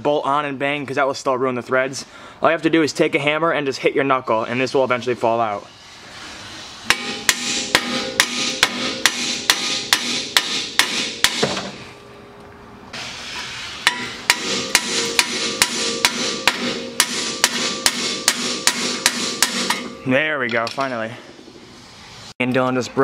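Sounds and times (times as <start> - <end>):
hammer striking metal: 6.8 - 11.9, 13.8 - 21.6.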